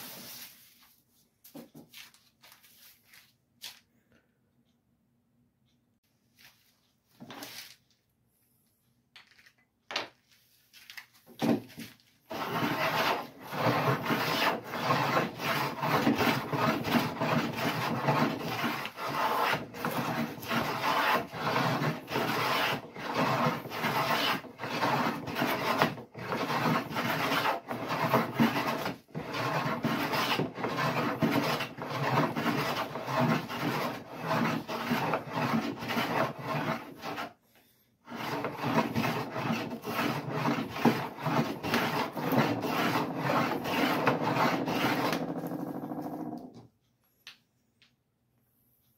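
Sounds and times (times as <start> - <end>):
hand plane shaving wood: 11.8 - 37.4, 38.0 - 46.4.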